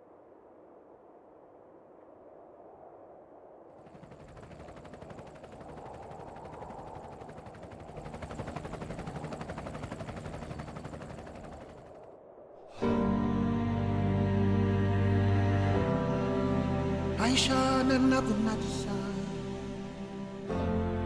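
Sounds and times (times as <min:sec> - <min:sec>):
fast ticking rattle: 0:03.8 - 0:12.0.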